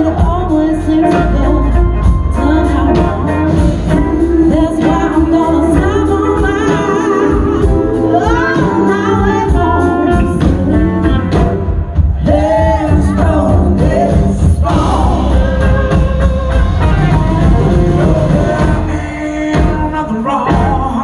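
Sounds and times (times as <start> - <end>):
electric bass guitar: 0.0 - 21.0
live band playing: 0.0 - 21.0
people singing in harmony: 2.9 - 16.1, 17.4 - 19.8.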